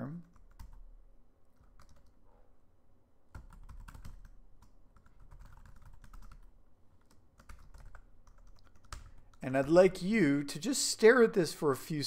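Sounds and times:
keyboard typing: 0:00.2 - 0:00.9, 0:01.5 - 0:02.2, 0:03.3 - 0:09.8.

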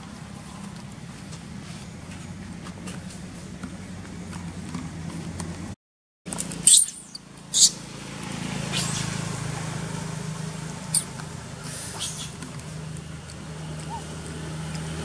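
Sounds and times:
baby monkey squealing: 0:06.6 - 0:07.8, 0:08.7 - 0:09.1, 0:11.7 - 0:12.4, 0:13.8 - 0:14.1.

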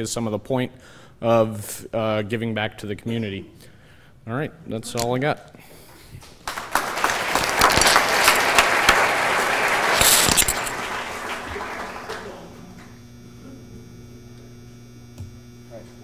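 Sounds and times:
electrical mains hum: 0:00.0 - 0:16.0
audience applauding: 0:06.3 - 0:12.9.

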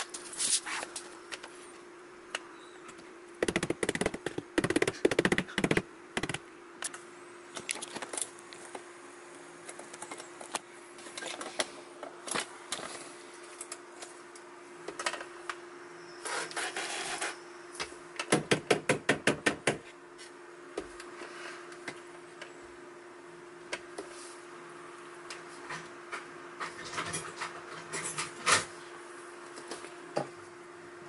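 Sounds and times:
steady low hum: 0:00.0 - 0:16.2
sharp taps and knocks: 0:03.4 - 0:06.4.

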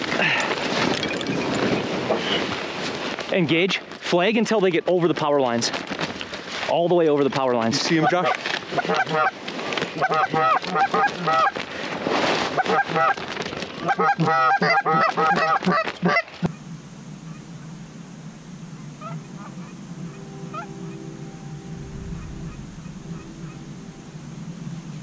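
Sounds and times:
geese honking and clucking: 0:07.9 - 0:11.6, 0:12.5 - 0:13.2, 0:13.8 - 0:16.6, 0:18.7 - 0:24.1.

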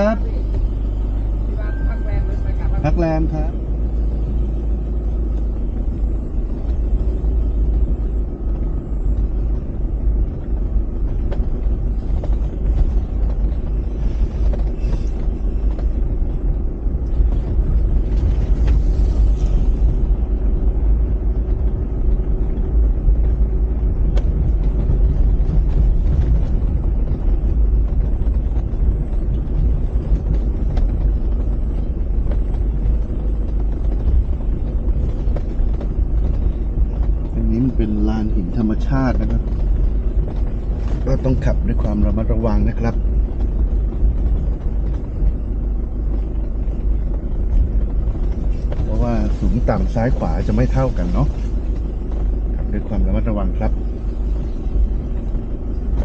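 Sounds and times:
vehicle rumble: 0:00.0 - 0:56.0
wind buffeting microphone: 0:03.6 - 0:56.0.

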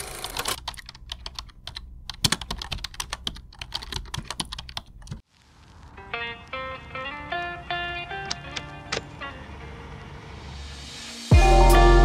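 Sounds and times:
keyboard typing: 0:00.2 - 0:05.2.

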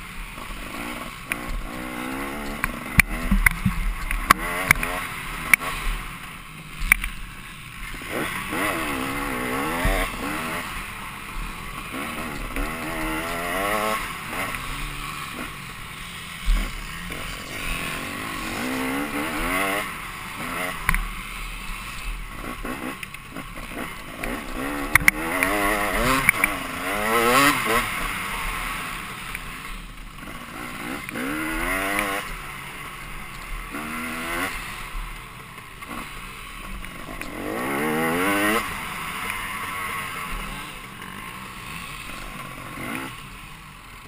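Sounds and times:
dirt bike engine accelerating: 0:00.0 - 0:44.0
sharp ticks: 0:00.4 - 0:06.0, 0:21.9 - 0:29.5.

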